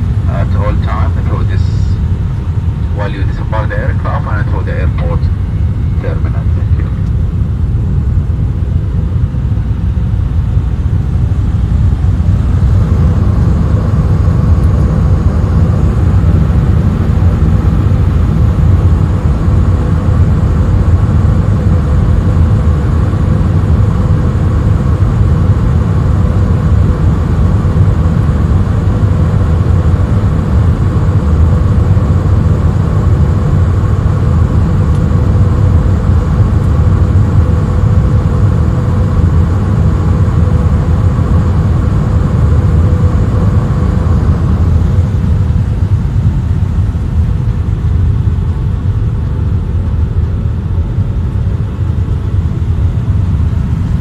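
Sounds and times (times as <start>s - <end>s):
faint steady tones: 0.0s - 25.3s
jet engine cabin drone: 0.0s - 54.0s.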